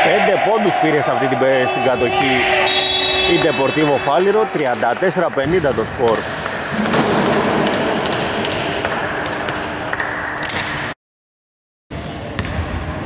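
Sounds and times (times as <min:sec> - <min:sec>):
faint hall noise: 0:00.0 - 0:10.9
scoreboard buzzer: 0:02.6 - 0:04.4.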